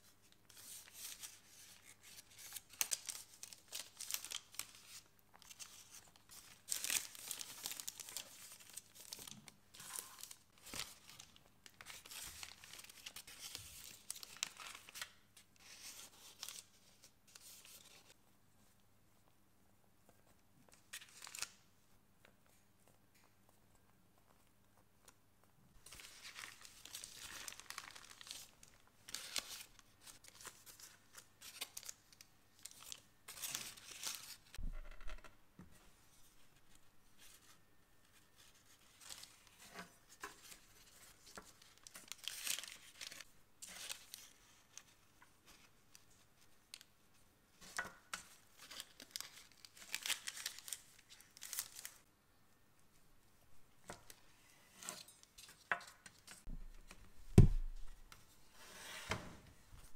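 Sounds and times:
baking paper crinkling: 0.4s - 18.2s, 25.8s - 34.6s, 36.3s - 47.0s, 47.7s - 52.1s.

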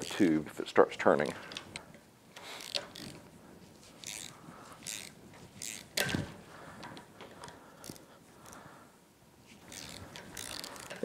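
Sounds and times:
hand tools clicking and scraping: 0.0s - 0.3s, 1.4s - 8.7s, 9.5s - 11.0s.

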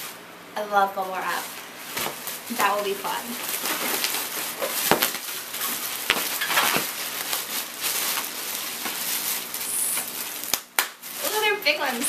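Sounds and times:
bubble wrap crinkling: 0.9s - 12.0s
bubble wrap clicks: 1.9s - 11.7s.

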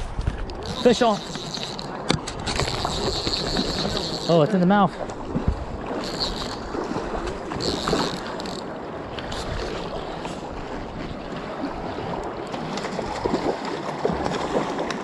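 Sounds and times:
wind on microphone: 5.2s - 12.2s.

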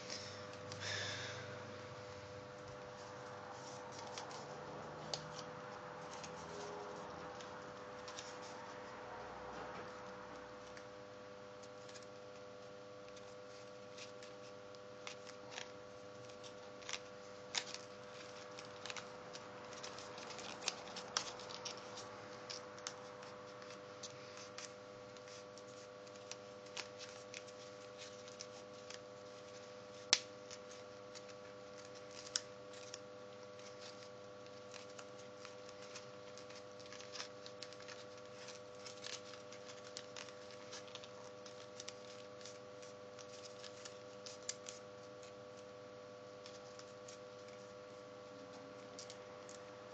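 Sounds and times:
paper crinkling: 2.5s - 49.9s
paper snapping: 13.8s - 45.3s.

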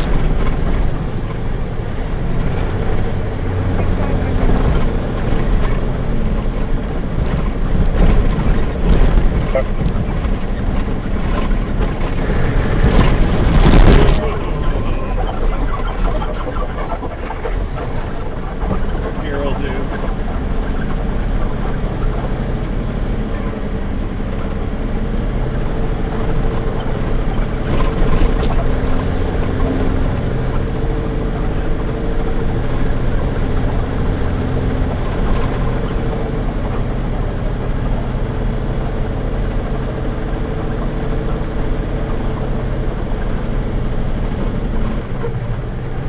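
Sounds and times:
truck diesel engine running: 0.0s - 46.0s
tyres on gravel: 3.9s - 22.6s.

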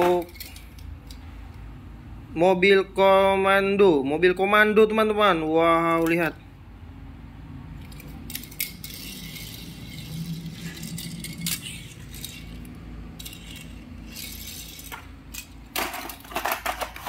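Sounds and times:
toy truck clicks and knocks: 0.0s - 1.2s, 7.8s - 17.0s
toy wheels rolling on tiles: 7.8s - 17.0s.

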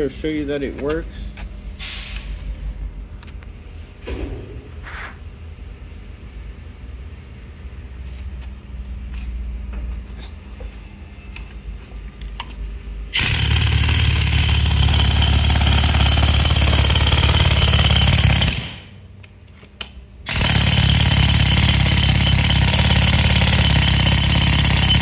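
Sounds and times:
jackhammer hammering into plywood: 13.2s - 19.0s, 20.3s - 25.0s.

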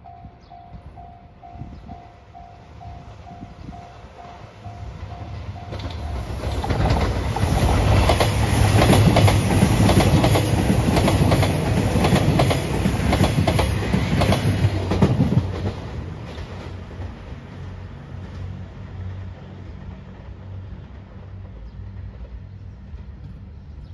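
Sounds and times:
diesel train engines: 0.0s - 23.9s
train wheels clattering over rail joints: 5.7s - 17.2s.

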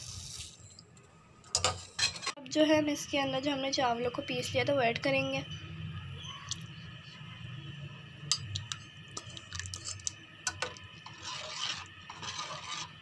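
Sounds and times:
spoon stirring in a pot: 8.3s - 13.0s
liquid swishing: 10.7s - 13.0s.

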